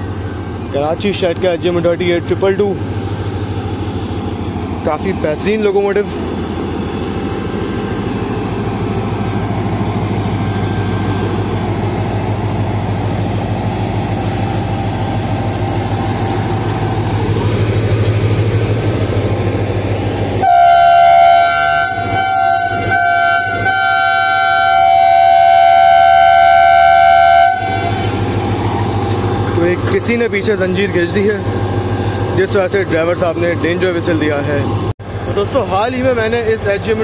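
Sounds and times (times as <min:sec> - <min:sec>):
locomotive engine drone: 0:00.0 - 0:37.0
locomotive horn blasts: 0:20.4 - 0:28.3.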